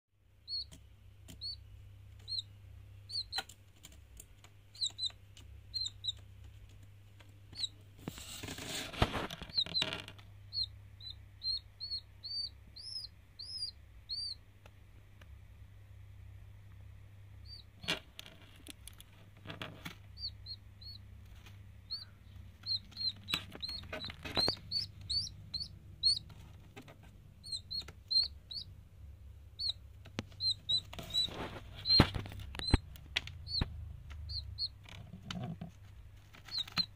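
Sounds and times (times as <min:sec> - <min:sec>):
chick peeping: 0:00.4 - 0:14.5, 0:17.4 - 0:36.9
rustling: 0:03.4 - 0:10.7, 0:17.7 - 0:28.4, 0:29.6 - 0:36.9.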